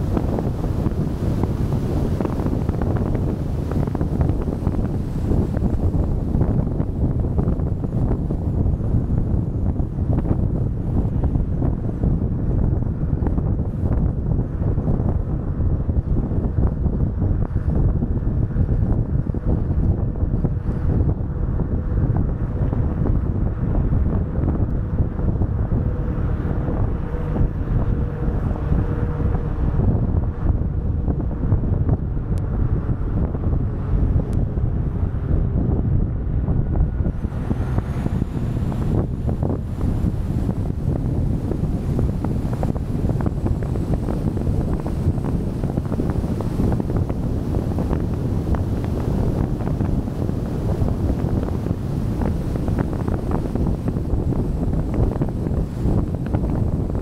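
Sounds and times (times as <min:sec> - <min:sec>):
car rumbling on road: 0:00.0 - 0:57.0
wind buffeting microphone: 0:00.0 - 0:57.0.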